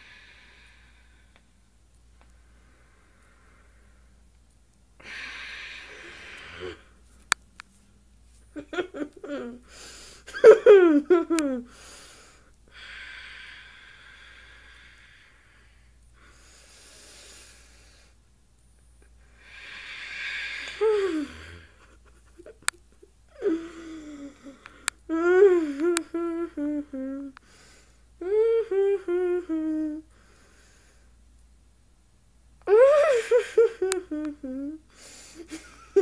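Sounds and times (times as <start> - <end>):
heavy noisy breath: 0.0 - 1.5, 5.0 - 7.1.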